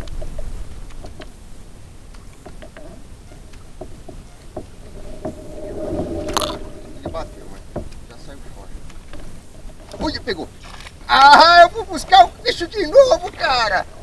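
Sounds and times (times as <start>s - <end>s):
steady hum: 4.8s - 7.8s.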